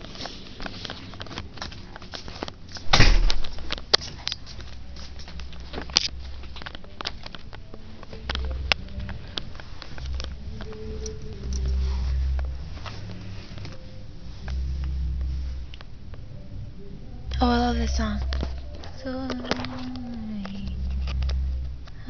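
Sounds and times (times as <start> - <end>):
low rumble: 2.6 - 22.0
loud bump: 2.9 - 3.6.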